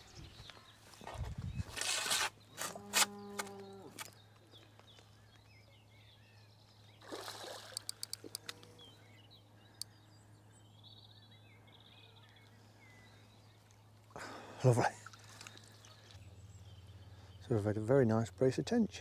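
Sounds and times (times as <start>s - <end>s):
faint birdsong: 0.0s - 19.0s
fish splashing at surface: 7.0s - 8.3s
small sharp clicks: 7.7s - 8.8s.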